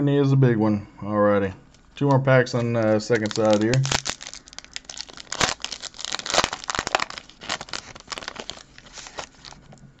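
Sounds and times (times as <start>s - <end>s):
foil wrapper crinkling: 2.5s - 10.0s.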